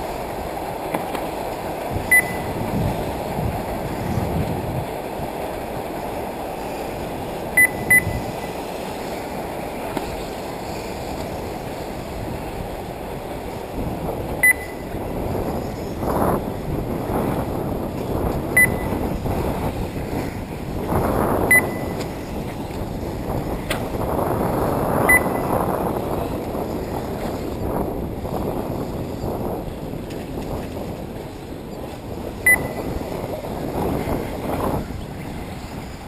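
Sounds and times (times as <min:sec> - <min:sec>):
wind on microphone: 0:00.0 - 0:36.0
short high electronic beeps: 0:02.1 - 0:02.6, 0:07.6 - 0:08.3, 0:14.4 - 0:14.9, 0:18.6 - 0:18.9, 0:21.5 - 0:22.0, 0:32.5 - 0:32.9.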